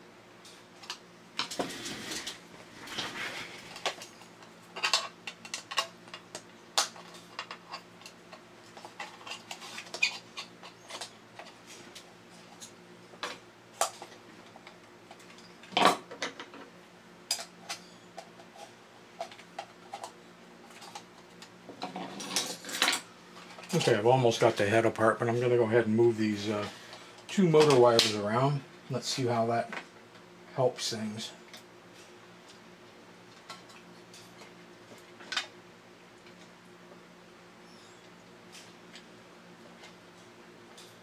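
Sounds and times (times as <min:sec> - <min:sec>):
faint steady hum: 0:00.0 - 0:41.0
small metal clicks and scrapes: 0:00.4 - 0:15.8.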